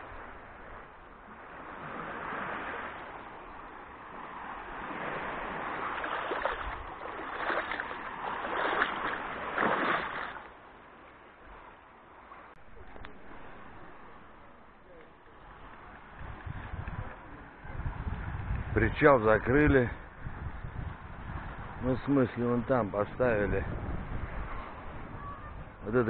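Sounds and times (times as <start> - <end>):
water splashing around swimmer: 4.7 - 10.6.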